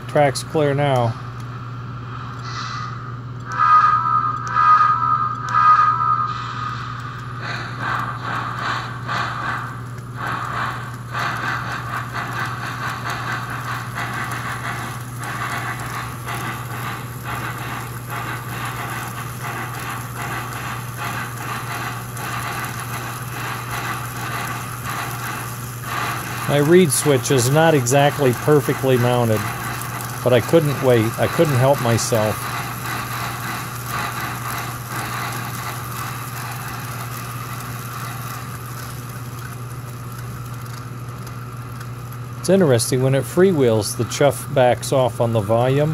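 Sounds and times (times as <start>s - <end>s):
electronic locomotive chuffs: 0.0s - 45.9s
steady low hum: 0.0s - 45.9s.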